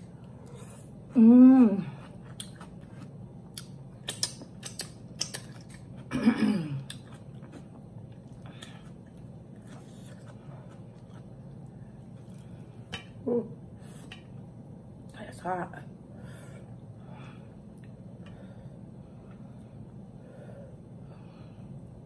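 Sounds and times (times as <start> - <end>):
person humming: 1.2 - 2.0
mouth clicks and lip-smacking: 3.6 - 5.5.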